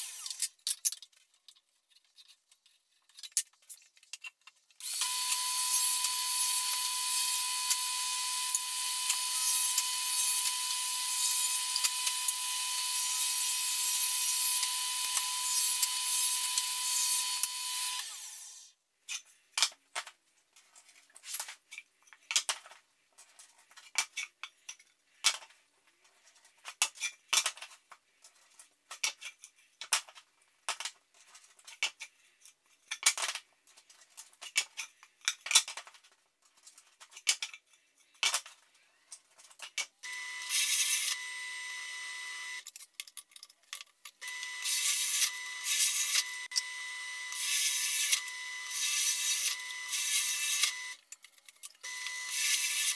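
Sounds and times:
table saw cutting wood: 0.0s - 0.4s, 4.8s - 18.7s, 40.1s - 42.6s, 44.2s - 51.0s, 51.9s - 52.9s.

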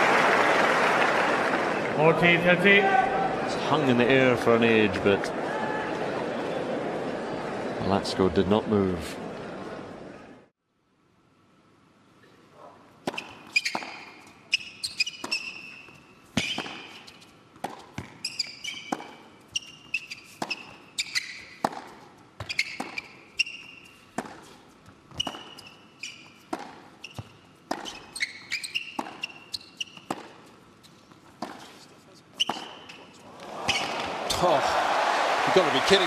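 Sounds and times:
racket striking ball: 13.0s - 19.3s, 20.3s - 23.2s, 24.1s - 25.8s, 26.4s - 30.5s, 31.4s - 31.8s, 32.4s - 33.0s
shoes squeaking on court: 13.0s - 34.1s
tennis ball bouncing: 13.0s - 34.4s.

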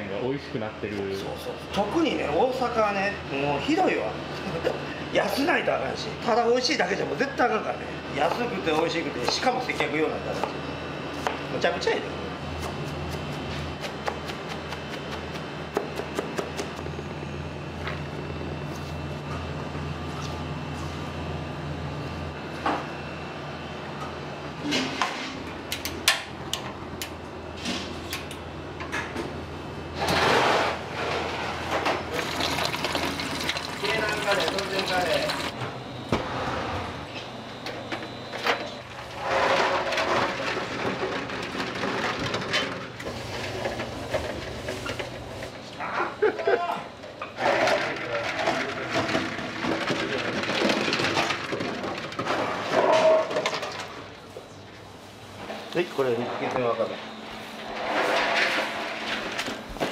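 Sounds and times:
eggs and ice clattering in bowl: 32.1s - 35.5s.

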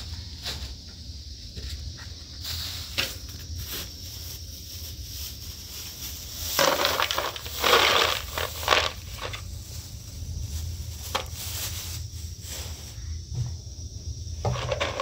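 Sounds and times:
plastic bag rustling: 2.4s - 13.0s, 14.4s - 15.0s
hard lumps clattering into bowl: 14.4s - 15.0s.

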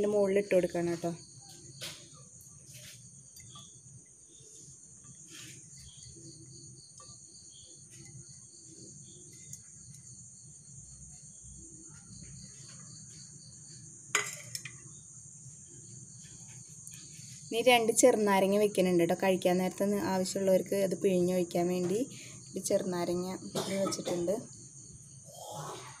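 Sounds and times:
crickets chirping: 0.0s - 26.0s
pulsing insect call: 22.1s - 26.0s.

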